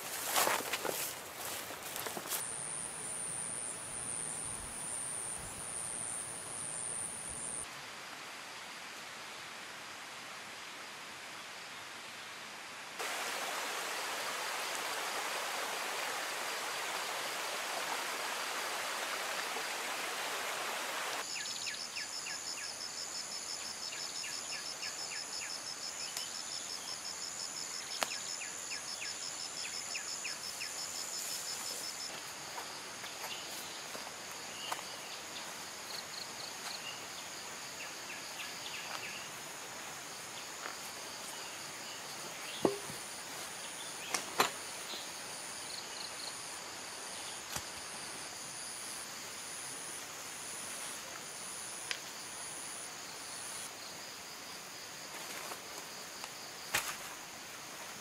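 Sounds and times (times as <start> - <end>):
insect chirps: 0.0 - 8.8, 13.0 - 58.0
stream rushing over rock: 13.0 - 21.3.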